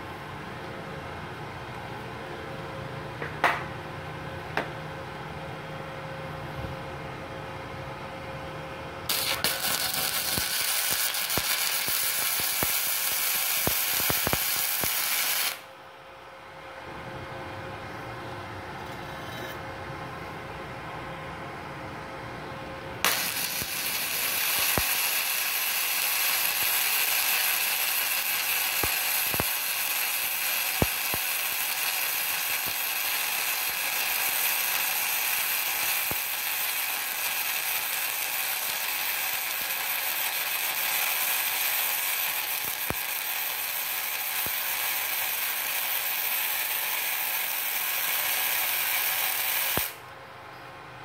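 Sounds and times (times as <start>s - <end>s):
welding arc hissing and popping: 9.1s - 15.7s, 23.0s - 50.0s.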